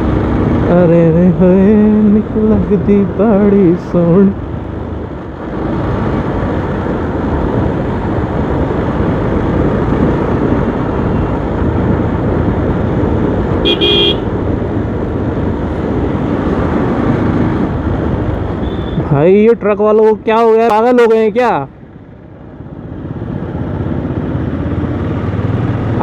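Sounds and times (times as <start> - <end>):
motorcycle road and wind noise: 0.0 - 26.0
vehicle horn honk: 13.6 - 14.3.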